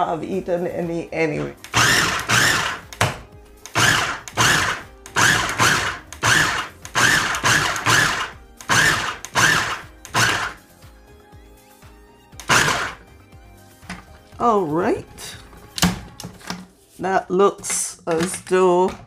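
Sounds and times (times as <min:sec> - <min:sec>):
food processor pulsing: 0:01.7 - 0:02.8, 0:03.7 - 0:10.6, 0:12.4 - 0:13.0.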